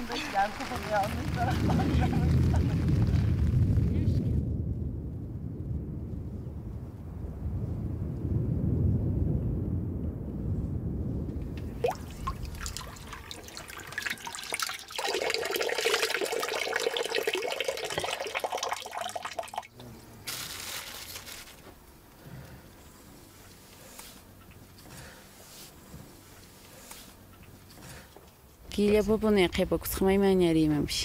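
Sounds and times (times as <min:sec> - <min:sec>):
low rolling thunder: 0:00.0 - 0:14.6
water pouring and splashing: 0:11.6 - 0:19.7.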